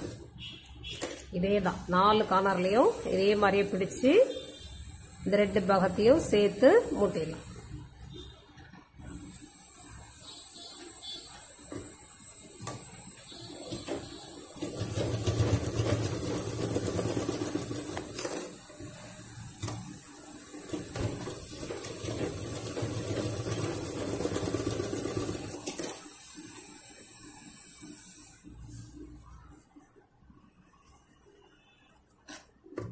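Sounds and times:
sewing machine stitching: 12.4 - 26.6.

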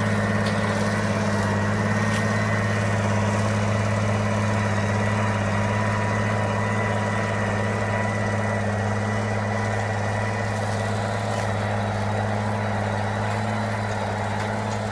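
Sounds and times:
thin steady whine: 0.0 - 14.9
tractor diesel engine drone: 0.0 - 14.9.

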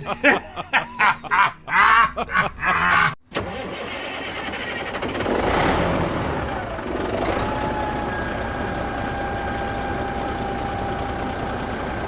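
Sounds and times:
tractor engine running: 3.4 - 12.0.

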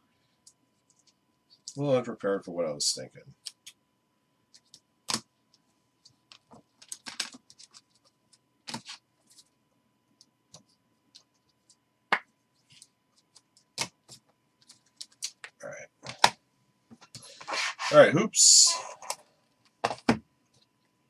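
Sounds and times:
plastic and card clicks and scrapes: 6.0 - 9.5.

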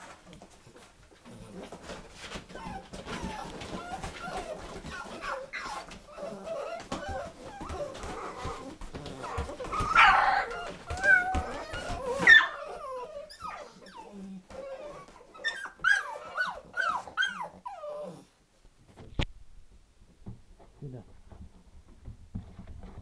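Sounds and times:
puppies whining and yelping: 1.4 - 18.4.

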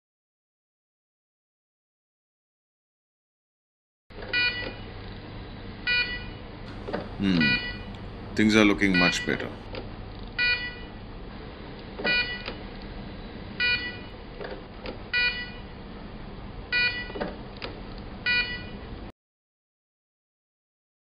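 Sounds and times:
patient monitor beeping: 4.4 - 4.9, 5.9 - 9.7, 10.4 - 11.0, 12.1 - 12.6, 13.6 - 14.2, 15.1 - 15.7, 16.7 - 17.2, 18.2 - 18.9.

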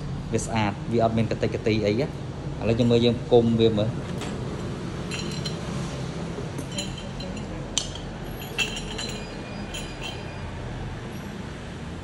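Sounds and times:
metal cup clinks and taps: 5.1 - 5.7, 6.6 - 10.4
sharp metal knocks: 6.6 - 10.4.

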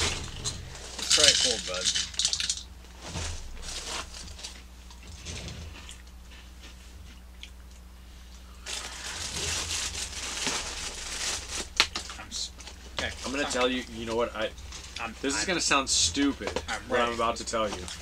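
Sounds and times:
rustling: 8.6 - 12.1.

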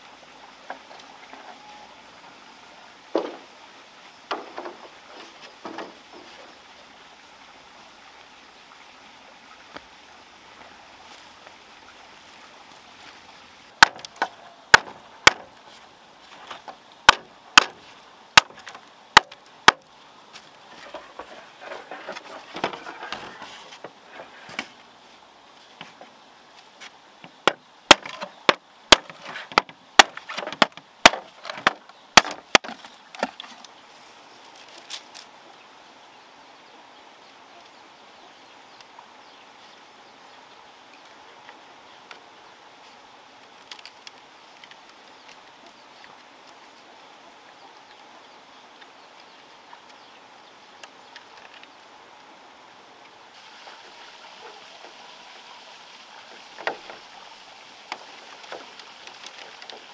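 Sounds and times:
bamboo strips rustling and scraping: 4.3 - 6.6, 10.6 - 35.5, 41.1 - 52.3, 53.0 - 59.9
machete chopping bamboo: 13.8 - 15.5, 17.1 - 17.8, 18.4 - 19.9, 27.4 - 33.3.

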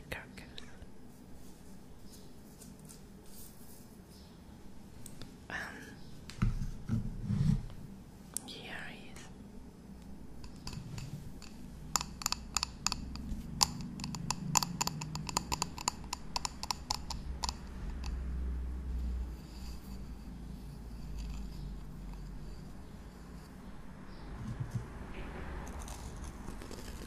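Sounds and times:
bowl rubbing and handling: 1.1 - 4.3, 10.4 - 18.2, 18.9 - 27.0
fingernails tapping on ceramic bowl: 10.4 - 18.2.

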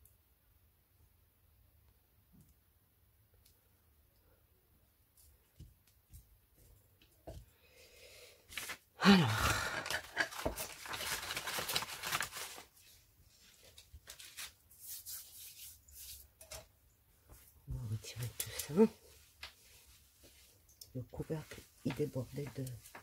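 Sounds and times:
paper rustling and crinkling: 8.5 - 16.6, 21.3 - 23.0.

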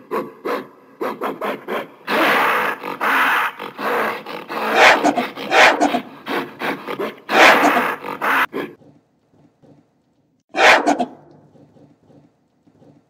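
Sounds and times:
gorilla grunts: 0.0 - 8.9
gorilla growling calls: 1.0 - 8.9.

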